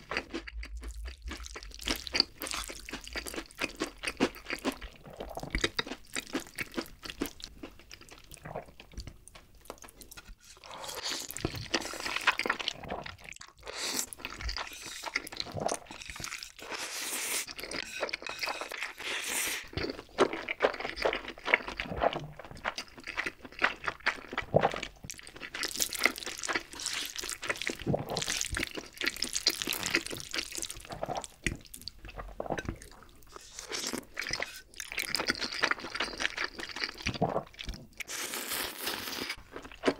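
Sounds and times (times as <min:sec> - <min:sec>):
sticky chewing and smacking: 0:00.0 - 0:10.4, 0:19.7 - 0:38.1
noodle slurping: 0:10.2 - 0:20.3.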